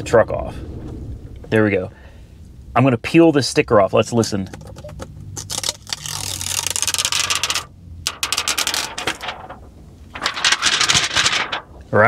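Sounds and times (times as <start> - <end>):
plastic film peeling crackle: 4.6 - 11.8.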